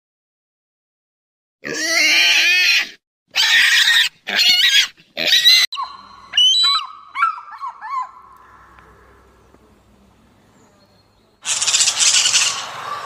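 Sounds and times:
pigs squealing: 1.6 - 8.8
eagle chirping calls: 5.8 - 9.4.

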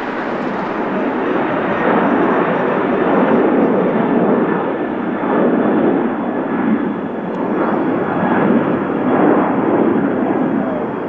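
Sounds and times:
jet engines at takeoff power: 0.0 - 11.0.

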